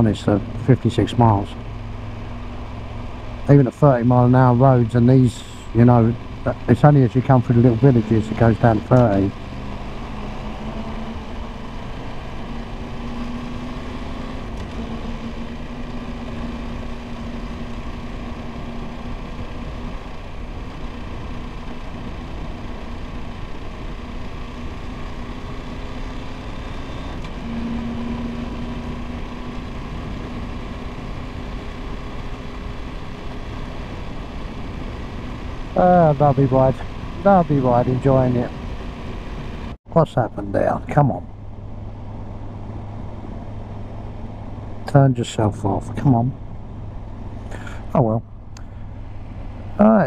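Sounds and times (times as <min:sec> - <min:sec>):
motorcycle engine cruising: 0:00.0 - 0:39.8, 0:40.4 - 0:50.0
road noise: 0:00.0 - 0:50.0.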